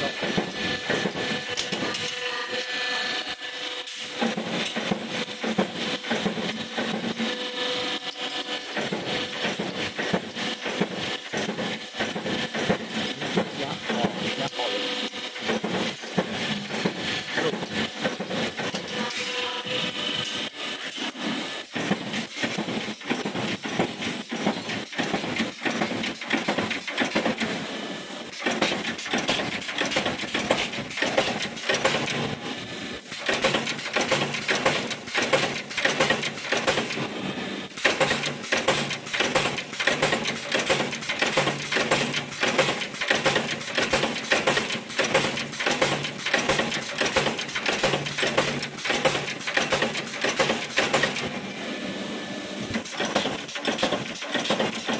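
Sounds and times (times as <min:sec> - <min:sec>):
punch press metallic clanks: 0:28.4 - 0:32.2, 0:33.1 - 0:37.0, 0:37.8 - 0:51.4, 0:52.8 - 0:54.9.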